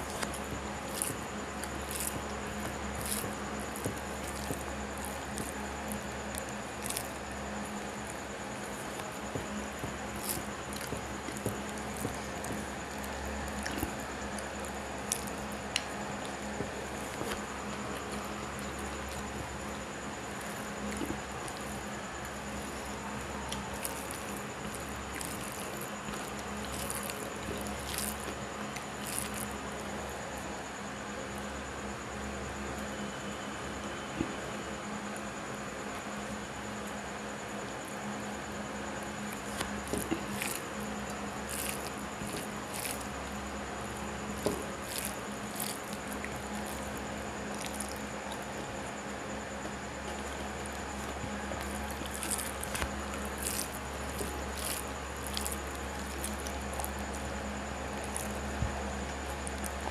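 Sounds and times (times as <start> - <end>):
chewing and mouth sounds: 0.0 - 30.2, 39.3 - 48.9, 49.5 - 59.9
fingers squishing rice: 0.0 - 30.6, 39.1 - 59.9
electrical hum: 0.0 - 59.9.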